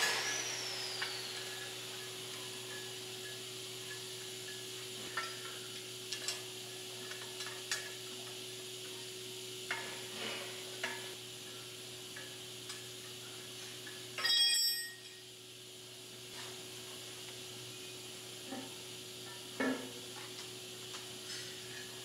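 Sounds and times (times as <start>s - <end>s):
steady low hum: 0.0s - 14.2s.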